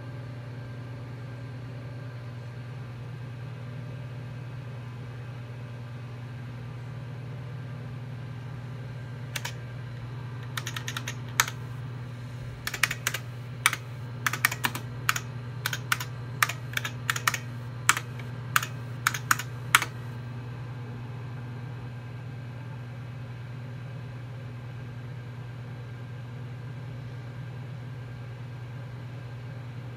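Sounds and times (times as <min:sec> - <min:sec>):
steady low hum: 0:08.8 - 0:20.6
keyboard typing clicks: 0:09.4 - 0:09.6, 0:10.4 - 0:11.8, 0:12.4 - 0:20.2.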